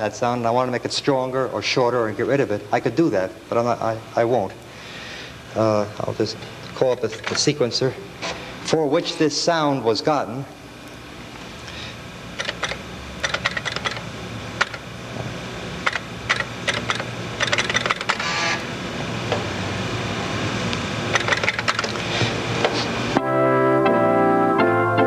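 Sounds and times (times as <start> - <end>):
organ-like synthesizer chord: 23.0 - 25.0.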